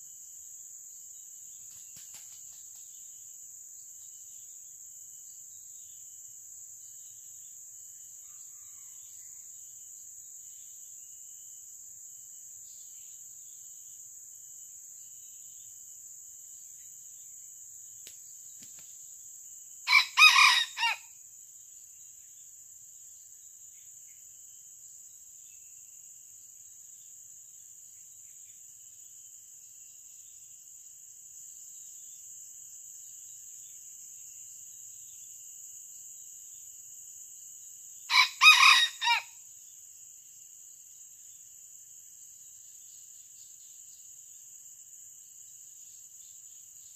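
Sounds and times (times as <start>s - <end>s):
rooster crowing: 8.2s - 9.4s, 19.9s - 21.1s, 38.1s - 39.3s
high-pitched insect drone: 18.0s - 46.9s.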